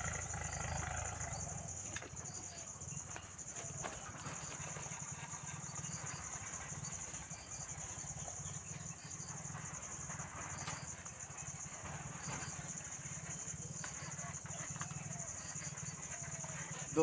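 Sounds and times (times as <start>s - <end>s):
low fast pulsing drone: 0.0s - 1.8s
insects chorus: 0.0s - 17.0s.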